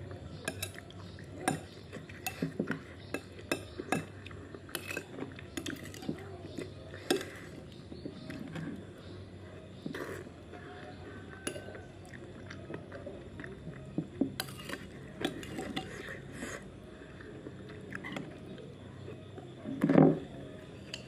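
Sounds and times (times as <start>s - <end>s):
spoon scraping ceramic plate: 4.7s - 6.0s, 14.4s - 16.1s
chewing: 9.8s - 19.5s.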